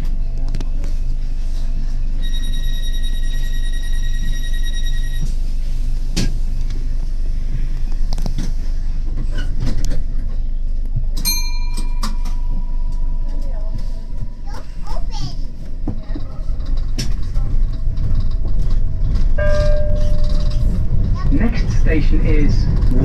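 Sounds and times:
train electrical hum: 0.0s - 23.0s
high beeping warning tone: 2.2s - 5.3s.

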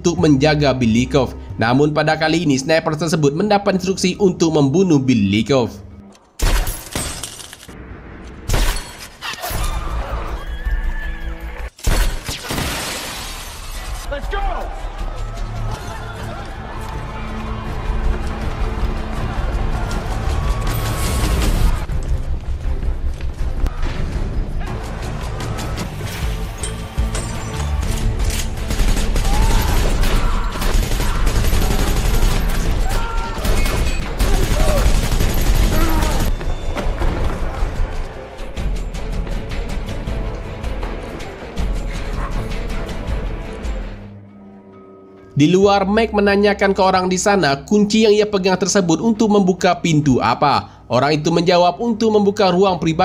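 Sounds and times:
dramatic film music: 0.0s - 6.7s, 13.7s - 53.0s
rapid gunfire: 28.5s - 36.3s.

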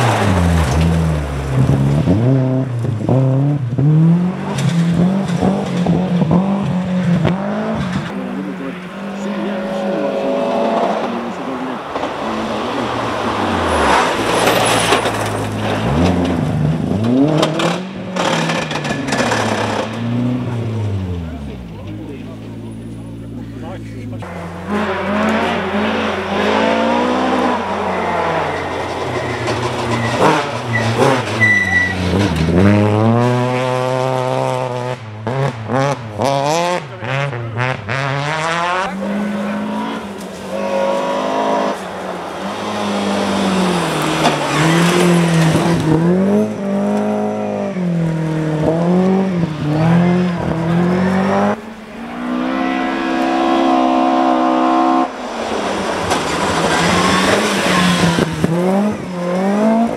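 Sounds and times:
rally car engines revving: 0.0s - 59.9s
engine crackling: 4.4s - 34.6s.

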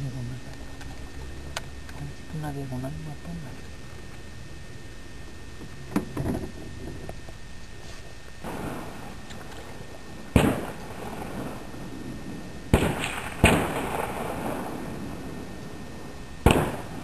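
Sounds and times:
gunshots with echo: 10.4s - 11.4s, 12.7s - 14.8s, 16.4s - 17.0s.

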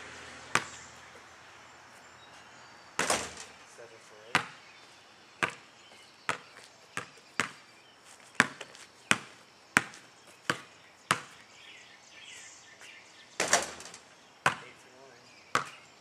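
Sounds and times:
basketball bouncing on asphalt: 0.4s - 1.3s, 3.0s - 3.6s, 4.2s - 11.5s, 13.4s - 14.8s, 15.5s - 15.8s
ball rattling on hoop: 3.0s - 3.6s, 13.4s - 14.7s.

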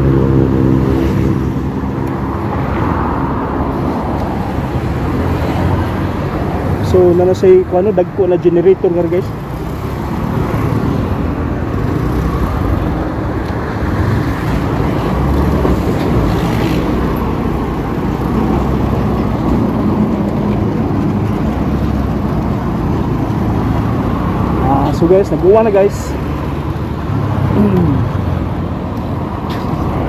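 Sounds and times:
road noise: 0.0s - 30.0s
motorcycle engine rumble: 8.6s - 30.0s.

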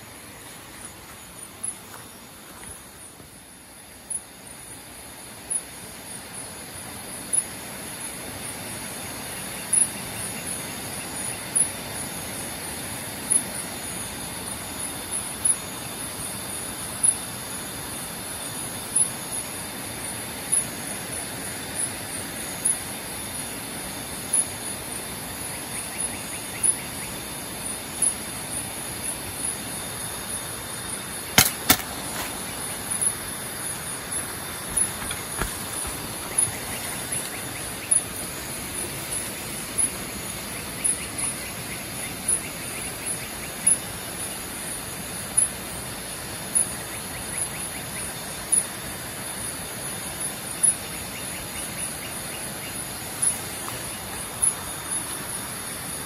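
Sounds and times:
insects chirring: 0.0s - 56.0s
loud insect chirp: 0.0s - 56.0s
crossbow shot clicks: 31.4s - 32.3s.

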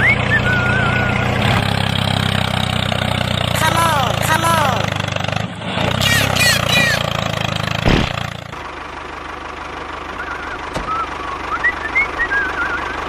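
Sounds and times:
whistle-like chirps: 0.0s - 1.2s, 10.2s - 13.0s
toy tractor engine chugging: 5.9s - 7.7s, 8.4s - 13.0s
sharp thump: 7.8s - 8.3s.

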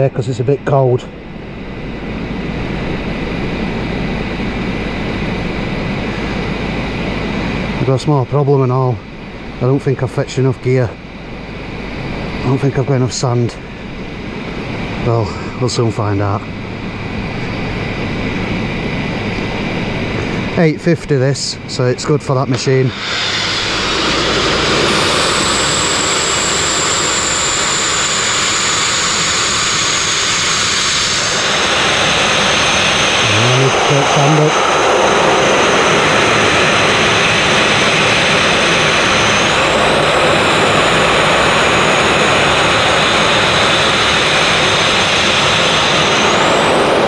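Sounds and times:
sandblasting against steel hull: 22.9s - 25.9s.

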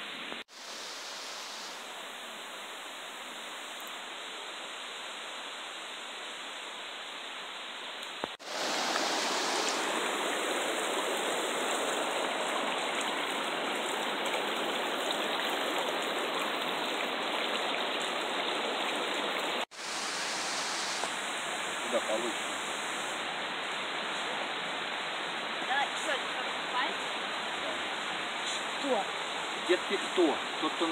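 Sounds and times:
river water rushing over rock: 8.4s - 30.9s.

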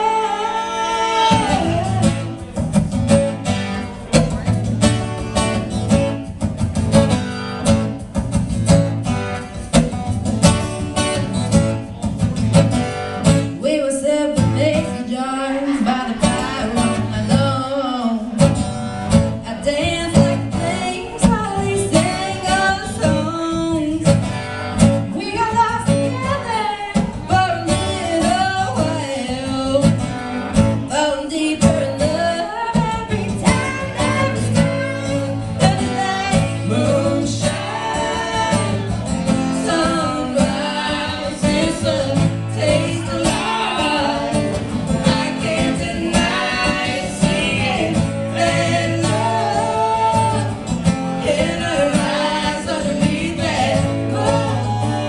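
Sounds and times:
woman singing: 0.0s - 2.5s, 13.4s - 18.6s, 19.3s - 24.2s, 25.0s - 30.1s, 30.8s - 50.6s, 51.2s - 55.0s
acoustic guitar strumming: 0.0s - 55.0s.

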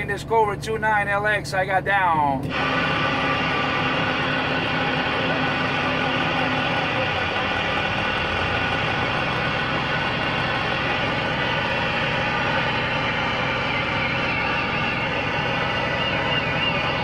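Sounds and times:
warbling high tone: 9.7s - 17.0s
radio static: 9.9s - 17.0s.

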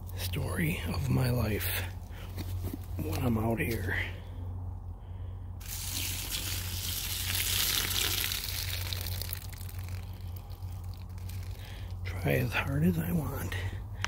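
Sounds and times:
water splashing onto leaf litter: 5.6s - 12.0s.

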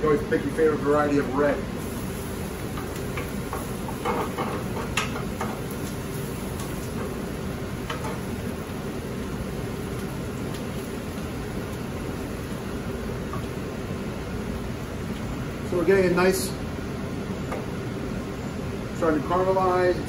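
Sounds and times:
food sizzling hiss: 0.1s - 16.1s.

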